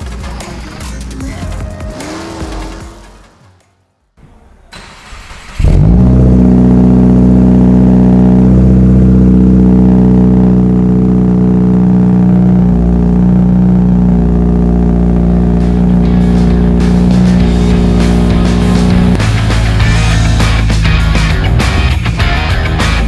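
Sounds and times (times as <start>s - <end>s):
car engine starting and idling: 0.0s - 3.4s, 4.3s - 23.0s.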